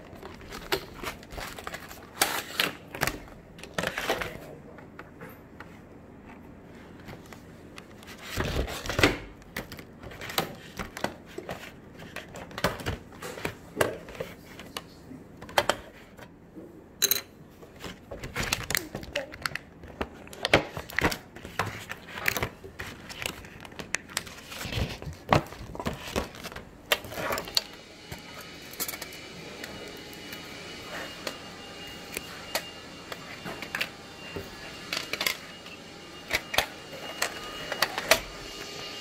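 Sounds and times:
steady hum: 21.2 - 39.0.

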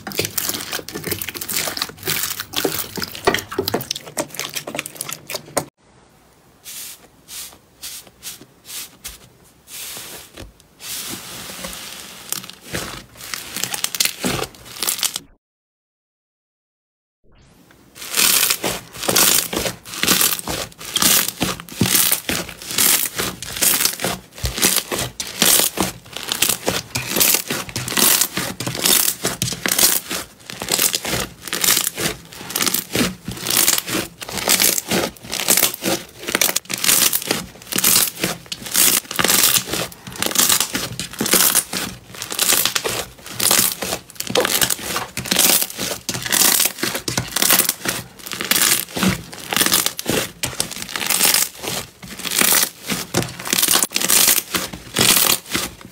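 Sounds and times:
slime crackling when squeezed: 18.0 - 51.6.

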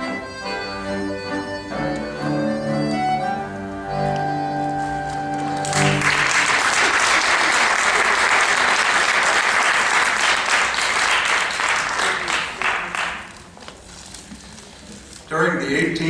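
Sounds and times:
folk trio playing: 0.0 - 6.2
audience applauding: 5.3 - 13.6.

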